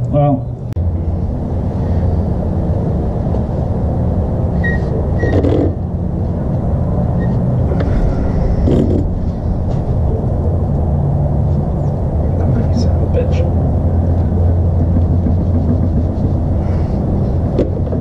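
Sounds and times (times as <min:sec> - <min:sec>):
low machine rumble: 0:00.0 - 0:18.0
faint short squeaks: 0:04.6 - 0:05.7.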